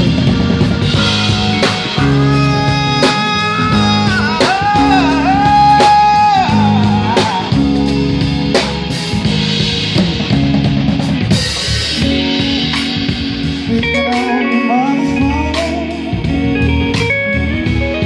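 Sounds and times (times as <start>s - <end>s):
drum kit hits: 0.0s - 14.5s
bass notes: 0.0s - 18.0s
electric guitar lead: 0.0s - 18.0s.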